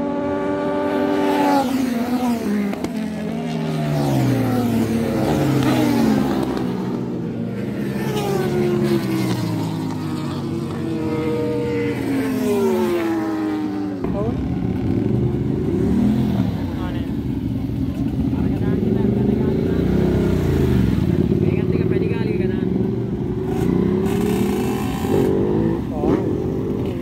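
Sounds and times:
racing motorcycles passing at speed: 0.0 - 27.0.

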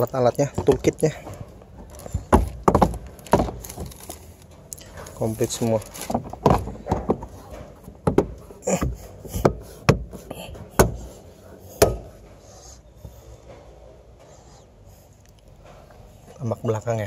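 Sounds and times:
plastic cover knocks and clip snaps: 2.0 - 4.2.

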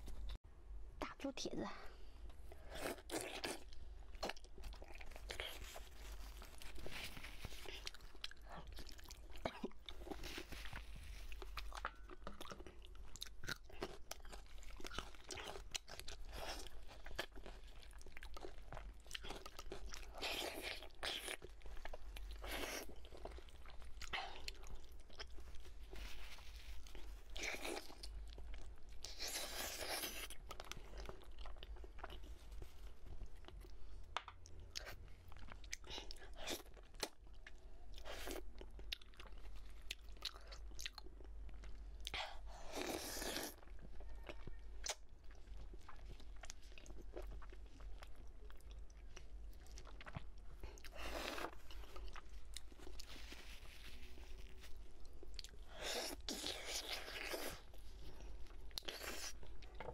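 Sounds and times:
close chewing and biting: 2.5 - 59.9.

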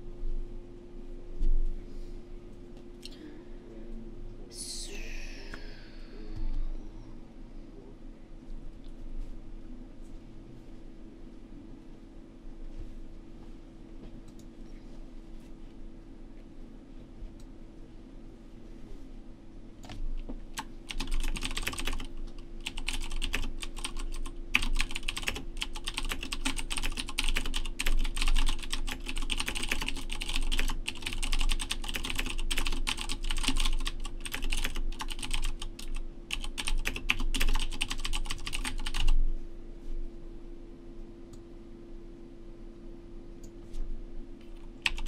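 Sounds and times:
steady low hum: 0.0 - 45.0
fast typing on keyboard: 19.8 - 39.2.

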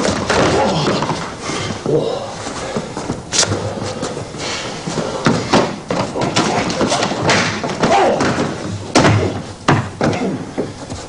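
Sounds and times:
stamping footwork: 2.6 - 11.0
strikes thudding and slapping: 5.2 - 10.4
body falling to floor: 5.2 - 10.7.

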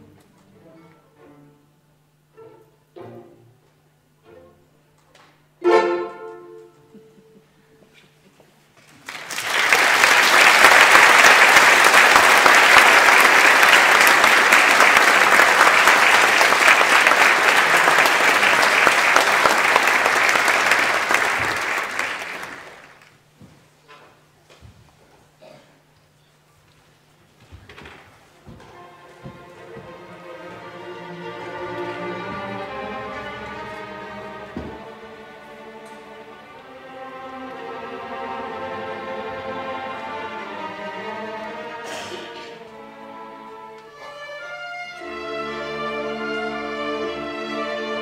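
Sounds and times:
string orchestra pizzicato: 0.0 - 8.6, 28.4 - 48.0
audience applauding: 8.8 - 23.2.

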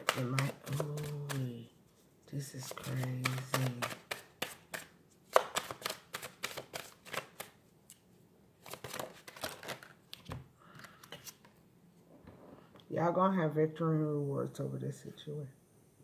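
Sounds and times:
cards being shuffled: 0.0 - 1.7, 2.3 - 8.0, 8.6 - 11.6.

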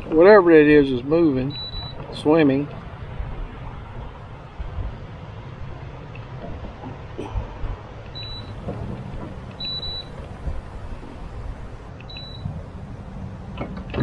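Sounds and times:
high-pitched electronic beeps: 1.5 - 2.0, 8.2 - 8.6, 12.1 - 12.5
low rumble: 2.7 - 14.0.

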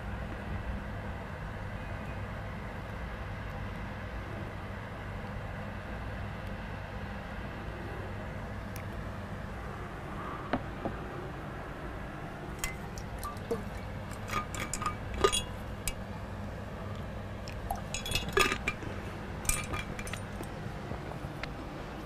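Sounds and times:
steady low hum: 0.0 - 22.0
small objects clicking and clinking: 17.7 - 18.9, 19.5 - 20.5.

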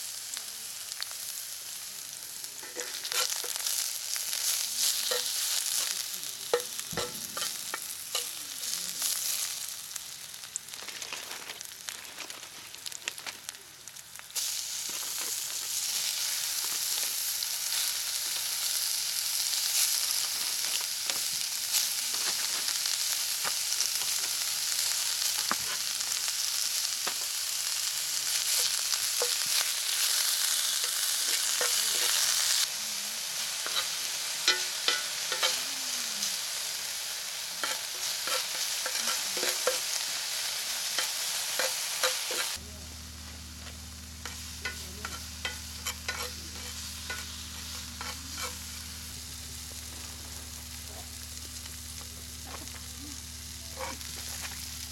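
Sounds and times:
food sizzling in a pan: 0.0 - 54.9
spatula scraping a pan: 2.6 - 3.8, 33.6 - 35.7, 37.6 - 42.6, 44.2 - 48.8, 53.7 - 54.6.

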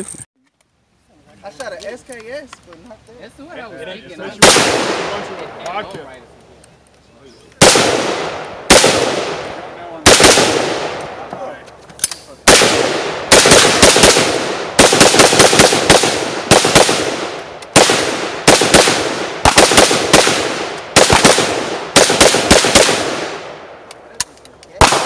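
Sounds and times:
rapid rifle gunshots: 4.4 - 5.5, 7.6 - 11.2, 12.5 - 23.6, 24.8 - 25.0
gunshot echo: 4.4 - 5.6, 7.6 - 11.6, 12.5 - 23.8, 24.8 - 25.0.

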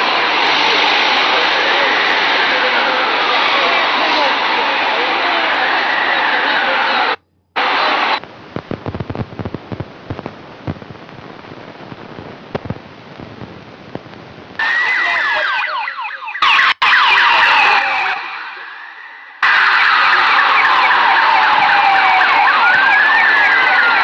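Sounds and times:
emergency vehicle siren: 0.0 - 8.2, 14.6 - 24.0
low street noise: 0.0 - 24.0.

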